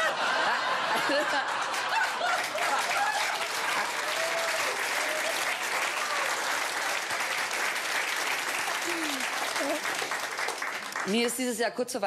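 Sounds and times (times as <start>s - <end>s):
audience laughing: 0.0s - 3.9s
audience clapping: 0.0s - 11.5s.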